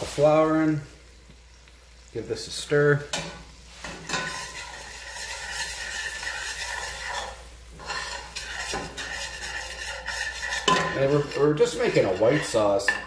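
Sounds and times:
spoon scraping metal pot: 3.8 - 13.0.

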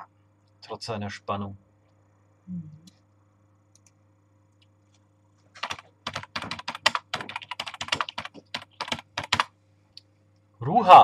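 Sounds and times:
keyboard typing: 5.6 - 9.5.

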